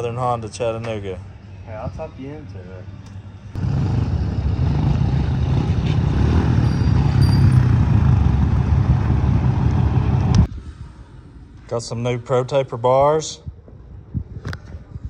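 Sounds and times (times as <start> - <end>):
motorbike engine running: 3.6 - 10.4.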